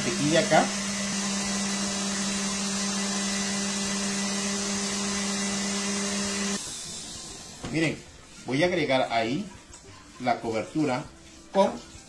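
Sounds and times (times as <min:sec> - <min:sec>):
stand mixer whirring: 0:00.0 - 0:07.6.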